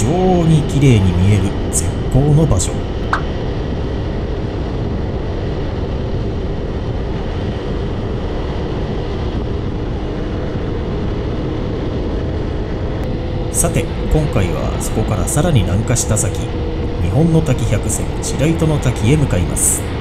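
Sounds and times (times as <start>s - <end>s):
car engine noise: 0.0s - 20.0s
tyres rumbling on asphalt: 5.8s - 20.0s.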